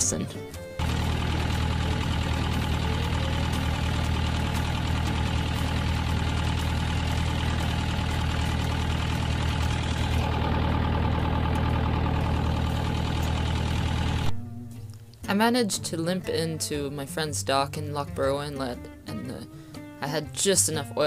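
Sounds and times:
diesel engine running: 0:00.0 - 0:14.4.

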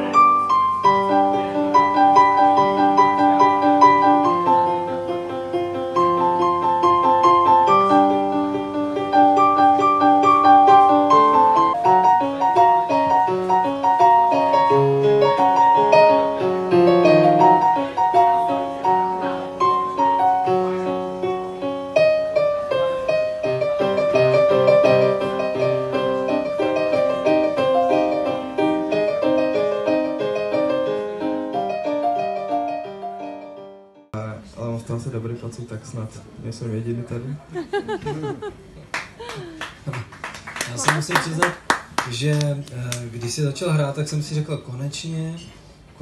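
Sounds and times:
solo piano gentle melody: 0:00.0 - 0:34.1.

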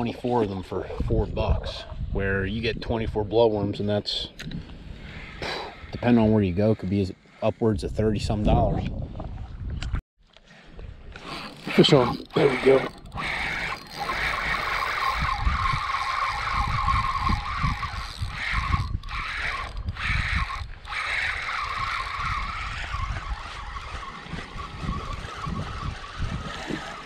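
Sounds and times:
fishing reel gear whirring: 0:04.5 - 0:07.6, 0:11.0 - 0:27.0.

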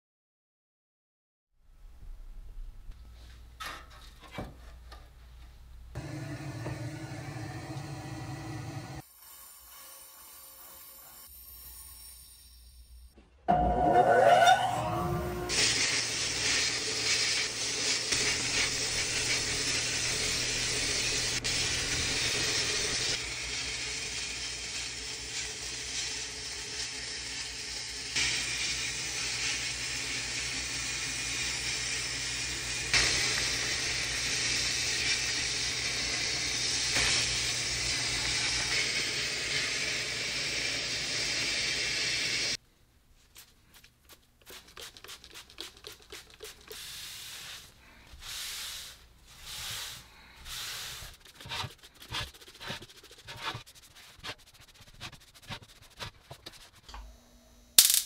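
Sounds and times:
sandblasting hiss: 0:15.5 - 0:42.6, 0:46.8 - 0:51.2
cloth wiping metal: 0:44.7 - 0:56.8.

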